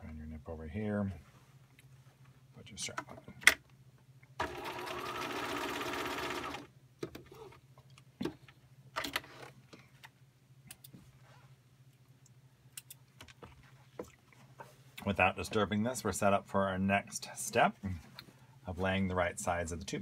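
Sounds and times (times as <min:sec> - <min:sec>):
sewing machine stitching: 0:04.4 - 0:06.7.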